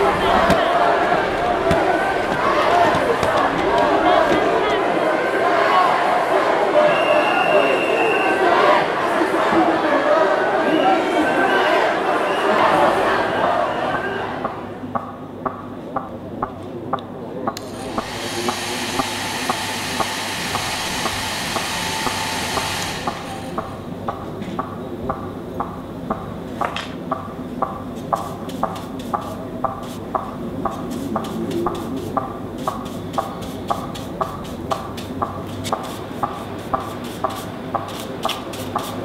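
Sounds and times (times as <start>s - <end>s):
hiss: 17.9s - 23.6s.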